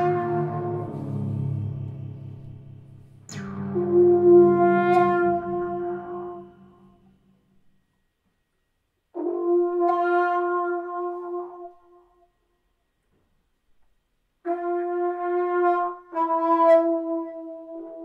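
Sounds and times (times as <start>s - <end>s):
electric trombone long notes: 0.0s - 7.5s, 9.2s - 12.2s, 14.4s - 18.0s.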